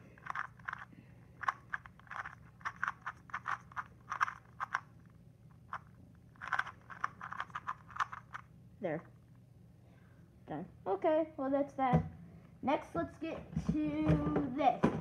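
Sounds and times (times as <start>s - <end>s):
puzzle cube turning clicks: 0.0s - 8.5s.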